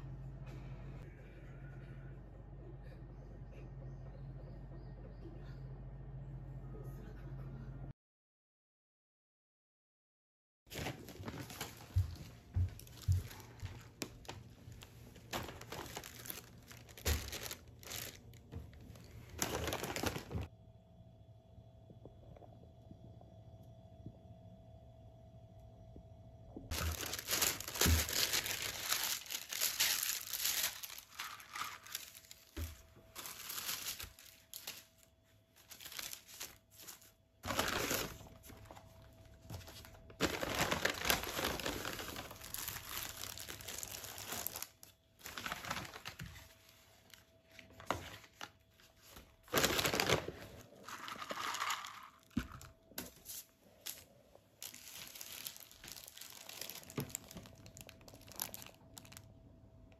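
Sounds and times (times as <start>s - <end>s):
takeout bags rustling and crinkling: 10.7s - 20.5s, 26.7s - 59.3s.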